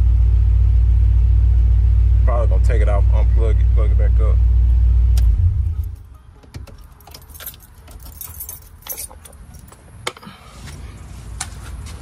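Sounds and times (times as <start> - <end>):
keys jangling: 5.8 - 9.8.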